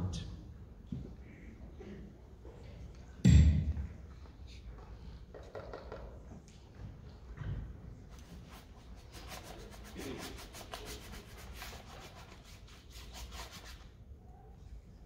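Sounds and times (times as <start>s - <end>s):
paint scrubbing on canvas: 8.3s - 13.9s.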